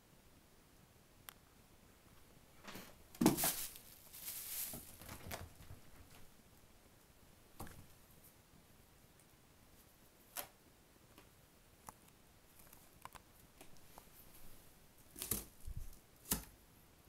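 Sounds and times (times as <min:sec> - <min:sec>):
kitten rustling on blanket: 0:03.2 - 0:06.3.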